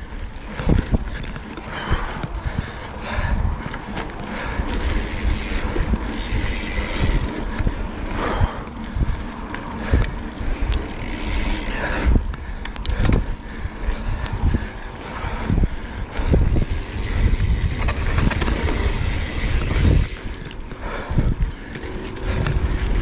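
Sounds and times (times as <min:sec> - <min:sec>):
bike clicks and rattles over bumps: 0:00.0 - 0:23.0
tyres rumbling on loose dirt: 0:03.6 - 0:13.3, 0:16.2 - 0:20.8.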